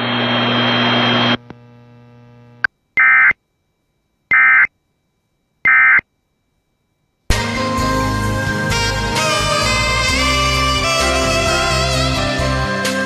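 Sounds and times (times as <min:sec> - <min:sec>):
faint hum: 0:00.0 - 0:07.3
click: 0:01.4 - 0:01.6
digital data squawk bursts: 0:03.0 - 0:03.4, 0:04.3 - 0:04.7, 0:05.7 - 0:06.0.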